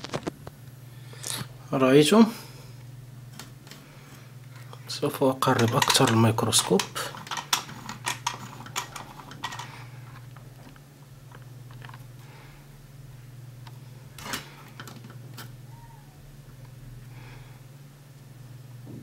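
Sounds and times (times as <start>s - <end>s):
low electrical hum: 0.0s - 19.0s
clicks and knocks handling microscope: 5.5s - 12.0s, 13.6s - 15.5s.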